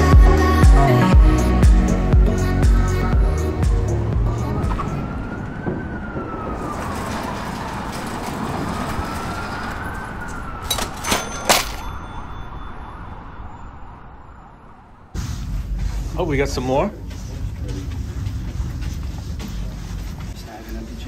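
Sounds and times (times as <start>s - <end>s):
police siren wailing: 1.5s - 15.2s.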